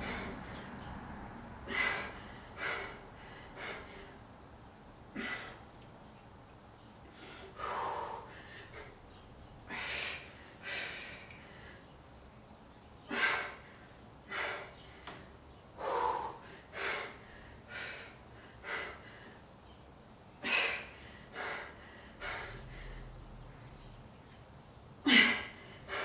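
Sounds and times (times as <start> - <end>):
woman breathing hard: 0.0 - 0.9, 1.6 - 4.3, 5.1 - 5.7, 7.0 - 12.0, 13.0 - 19.6, 20.4 - 23.8, 25.0 - 26.0.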